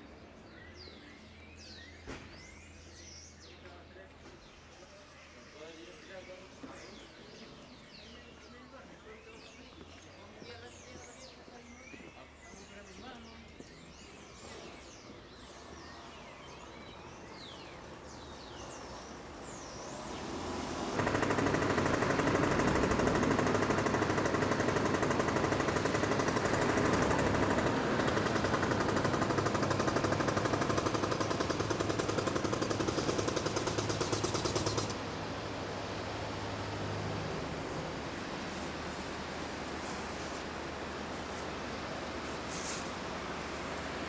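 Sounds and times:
birds chirping: 0:00.0 - 0:44.0
rapid mechanical hammering: 0:21.0 - 0:35.0.

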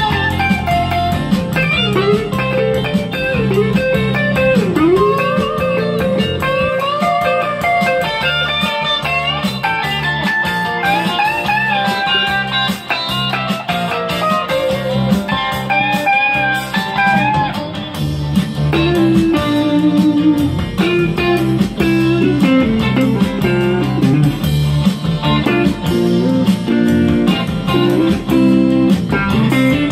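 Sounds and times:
electric guitar lead line: 0:00.0 - 0:29.9
low bass notes: 0:00.0 - 0:29.9.

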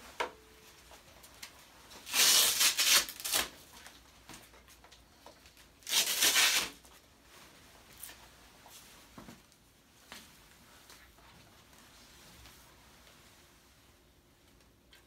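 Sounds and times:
velcro ripping apart: 0:02.0 - 0:03.6, 0:05.8 - 0:06.8.

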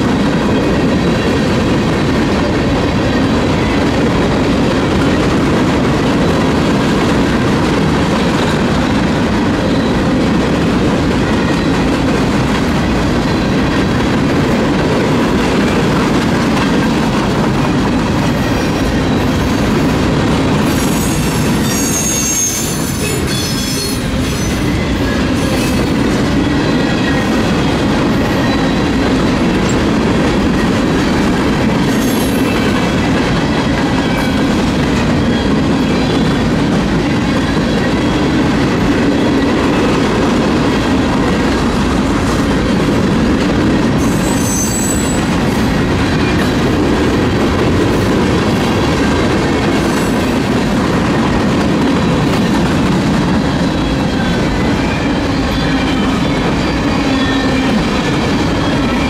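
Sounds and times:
steel wheels on rails: 0:00.0 - 0:59.0
faint high wheel squeal: 0:44.0 - 0:45.3.

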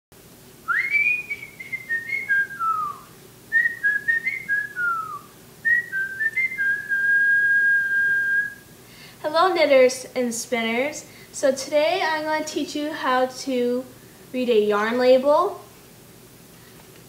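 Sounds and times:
person whistling a tune: 0:00.7 - 0:08.6.

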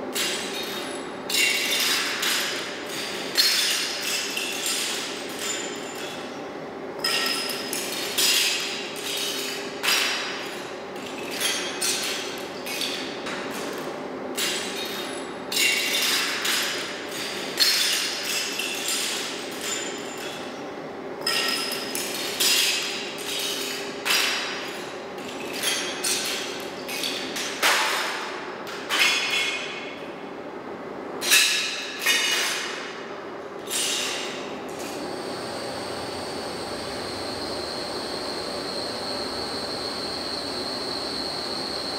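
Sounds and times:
steady low hum: 0:34.4 - 0:41.9.

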